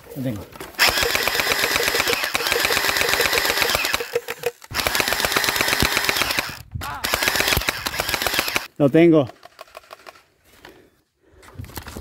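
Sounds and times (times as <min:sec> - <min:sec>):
gel blaster rattle of shots: 0:00.8 - 0:08.7, 0:09.3 - 0:10.3.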